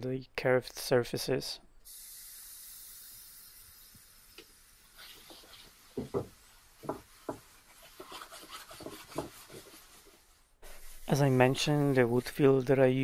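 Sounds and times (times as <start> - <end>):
cloth rubbing wooden chair seat: 5.0 - 12.2.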